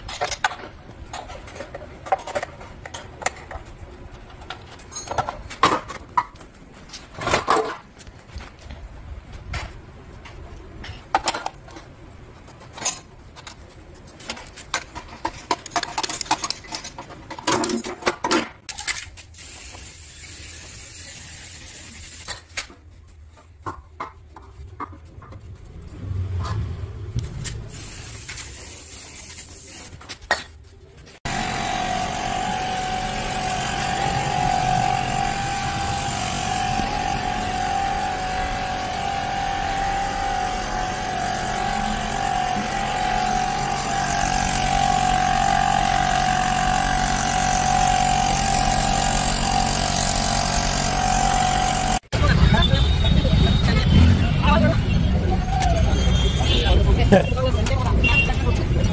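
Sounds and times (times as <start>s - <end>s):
air compressor whining: 31.2s - 52.1s.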